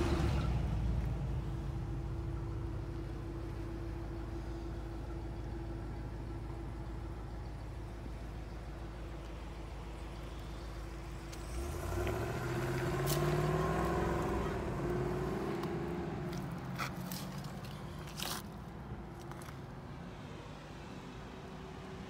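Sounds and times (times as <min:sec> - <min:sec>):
vehicle engine revving: 0:00.0 - 0:01.0, 0:11.2 - 0:17.5.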